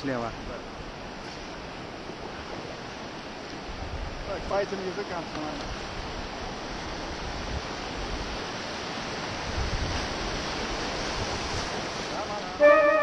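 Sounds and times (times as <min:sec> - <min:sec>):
whitewater rushing: 0:04.2 - 0:13.0.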